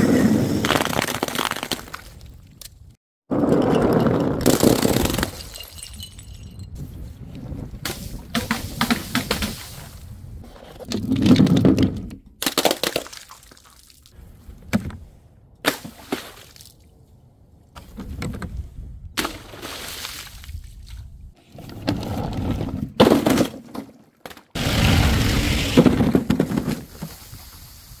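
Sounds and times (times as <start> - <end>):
glass shattering: 4.4 - 6.6.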